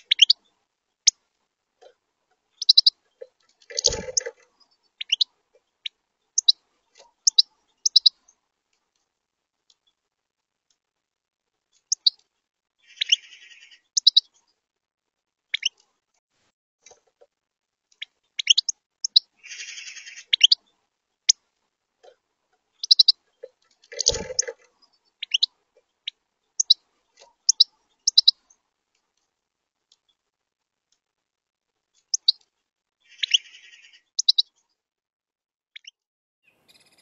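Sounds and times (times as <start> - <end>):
buzzy bird twittering: 0.0 - 0.4, 2.6 - 3.0, 3.6 - 5.3, 6.4 - 8.2, 11.9 - 12.2, 12.8 - 14.3, 15.5 - 15.8, 18.4 - 20.6, 22.8 - 23.2, 23.8 - 26.8, 27.4 - 28.5, 32.1 - 32.4, 33.1 - 34.5, 35.8 - 37.0
finches chirping: 0.0 - 1.2, 2.5 - 8.4, 11.8 - 12.2, 12.8 - 14.6, 15.5 - 15.8, 18.0 - 21.4, 22.0 - 28.6, 32.0 - 32.4, 33.0 - 34.6, 35.8 - 37.0.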